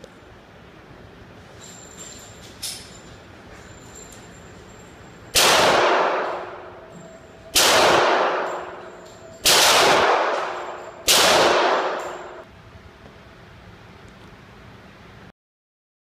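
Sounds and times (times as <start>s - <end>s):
pistol shots echoing indoors: 5.3s - 12.5s.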